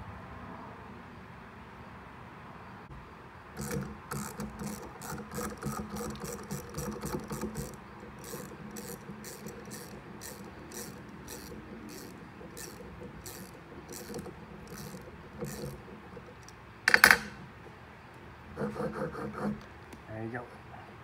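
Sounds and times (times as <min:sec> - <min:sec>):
ratchet wrench clicking: 0:03.6 - 0:17.4.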